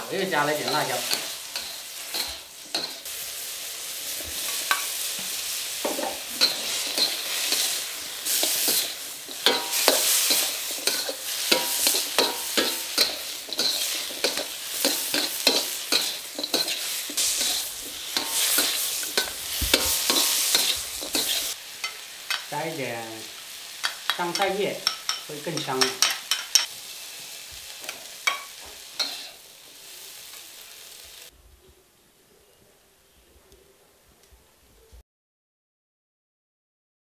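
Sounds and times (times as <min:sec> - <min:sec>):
food sizzling in a wok: 0:00.0 - 0:31.4
metal spatula scraping a pan: 0:00.1 - 0:03.2, 0:03.9 - 0:22.5, 0:27.8 - 0:29.4.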